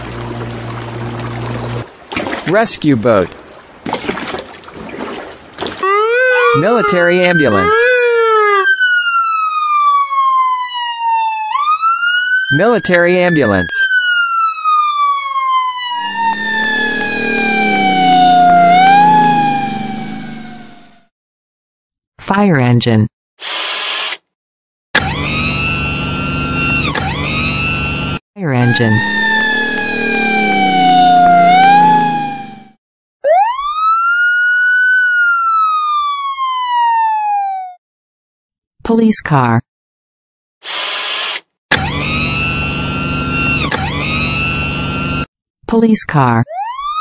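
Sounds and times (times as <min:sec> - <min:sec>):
siren wailing: 0:05.7 - 0:21.1, 0:25.0 - 0:37.8, 0:41.7 - 0:45.3, 0:46.4 - 0:47.0
low vehicle rumble: 0:16.0 - 0:21.0.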